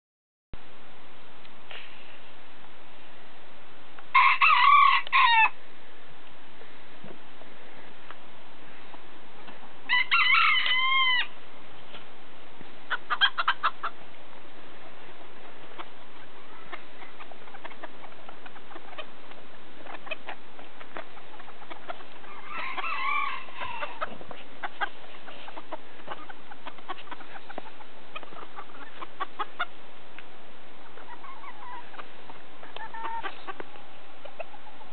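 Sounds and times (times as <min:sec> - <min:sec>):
loud chicken call: 0:04.1 - 0:05.6, 0:09.9 - 0:11.4, 0:21.4 - 0:27.5
chickens clucking: 0:08.8 - 0:34.9
chicken pecking ticks: 0:15.2 - 0:34.8.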